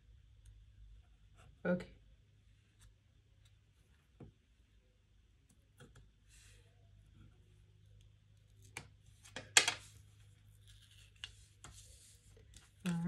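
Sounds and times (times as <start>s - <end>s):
paper rustle: 9.1s - 13.0s.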